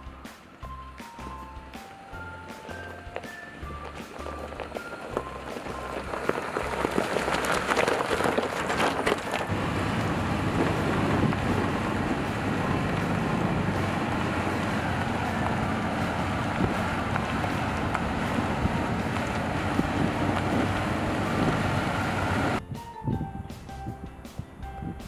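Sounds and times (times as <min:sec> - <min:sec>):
low rumble of engine and tyres: 0:00.0 - 0:22.6
tyres crunching on gravel: 0:02.4 - 0:22.6.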